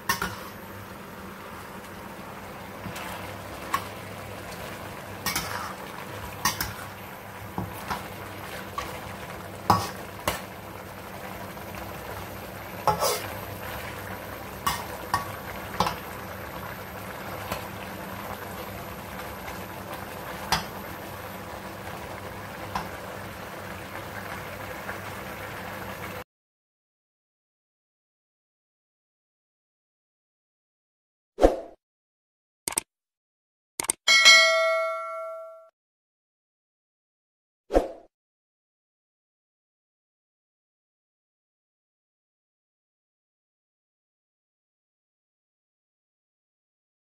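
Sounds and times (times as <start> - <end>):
steady sizzle: 0.0 - 26.2.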